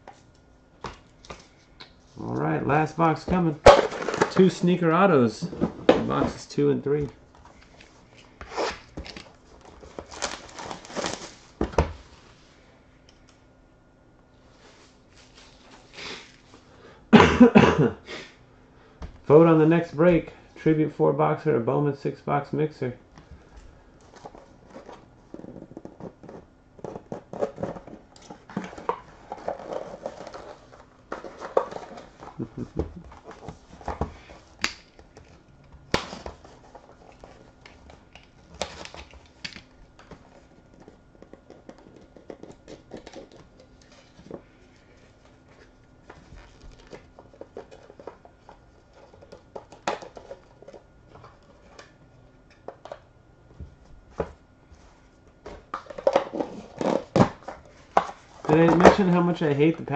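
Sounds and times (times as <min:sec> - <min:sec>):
packaging crinkling and tearing: 0:08.5 - 0:11.4.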